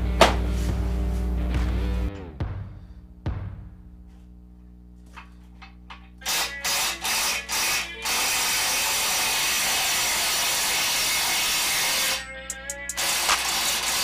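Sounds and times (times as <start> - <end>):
impact wrench bursts: 5.1 - 14.0.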